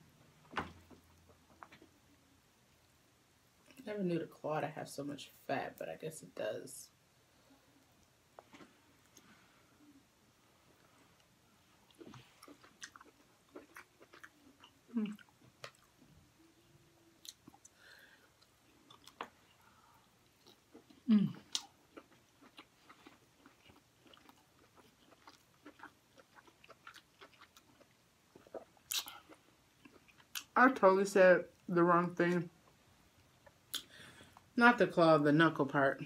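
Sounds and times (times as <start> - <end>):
person chewing wetly: 11.9 - 16.1, 17.2 - 30.5.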